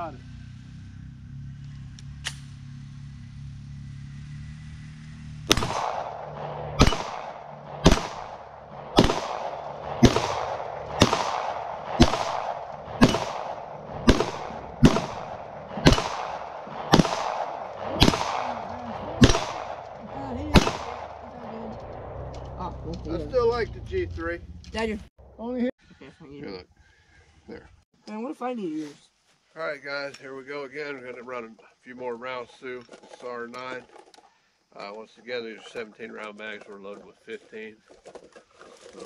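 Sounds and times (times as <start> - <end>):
pistol shots with echo: 5.5 - 21.3.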